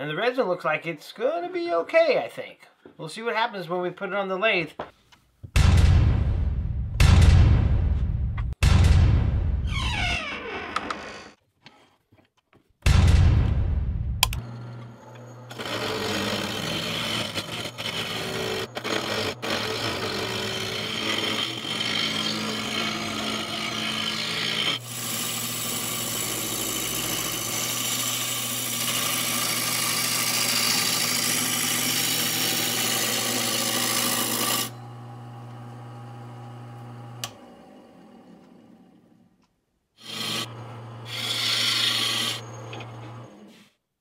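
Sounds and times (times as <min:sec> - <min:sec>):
lathe motor humming: 0:14.4 - 0:39.0, 0:40.0 - 0:43.5
turning tool scraping wood: 0:14.7 - 0:34.8, 0:40.0 - 0:43.8.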